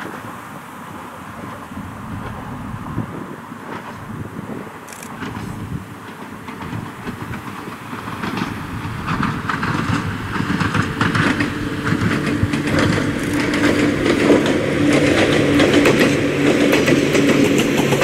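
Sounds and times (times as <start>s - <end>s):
electric train humming: 0.0s - 18.0s
train wheels clattering: 4.9s - 18.0s.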